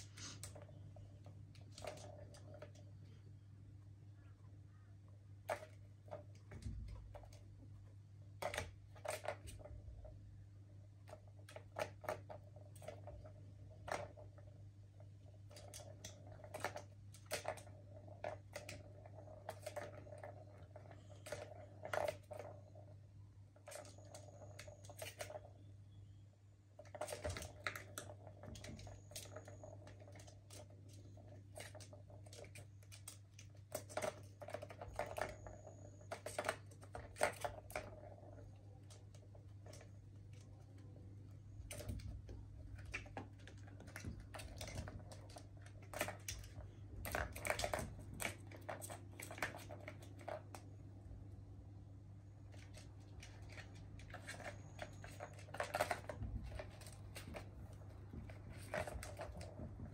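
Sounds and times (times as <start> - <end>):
plastic ball rolling in track: 11.0 - 50.8, 52.3 - 59.9.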